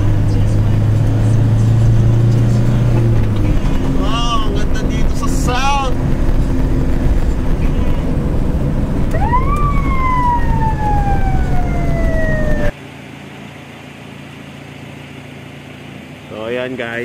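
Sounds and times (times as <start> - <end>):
road and engine noise: 0.0 - 17.0
ambulance siren wail: 9.1 - 12.8.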